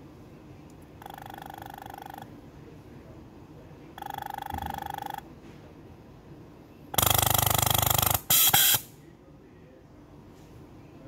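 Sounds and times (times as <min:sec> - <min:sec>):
air valves buzzing pulse: 0:07.0 - 0:08.9
compressed air hissing burst: 0:08.2 - 0:08.9.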